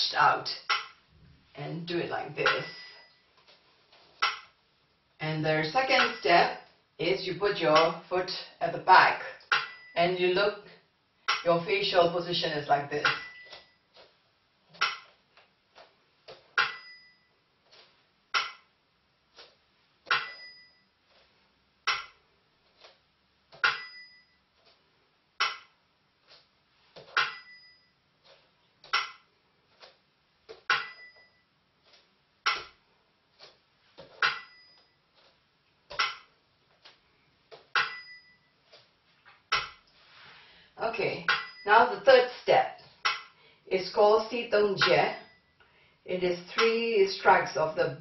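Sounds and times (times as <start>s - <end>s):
small bell ringing: 34.4s - 35.0s, 37.8s - 38.5s.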